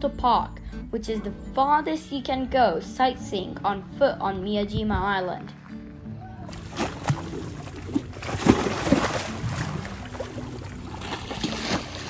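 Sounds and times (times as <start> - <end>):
sea waves lapping on shore: 6.5 - 12.0.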